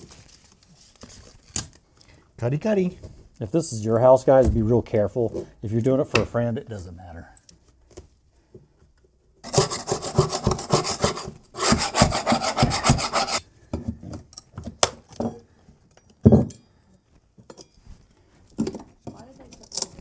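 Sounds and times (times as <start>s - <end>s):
floor scraper scraping plywood: 9.4s - 13.4s.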